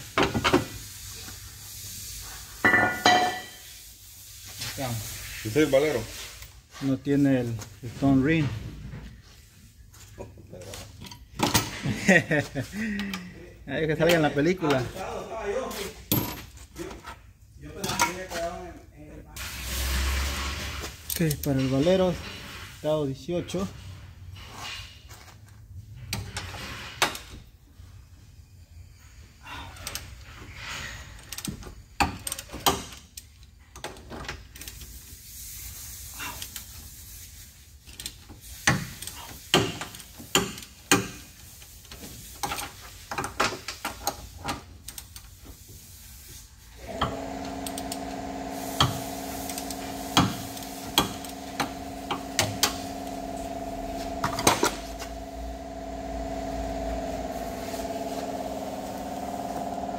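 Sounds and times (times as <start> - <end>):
machine hum with fixed tones: 46.8 - 59.9.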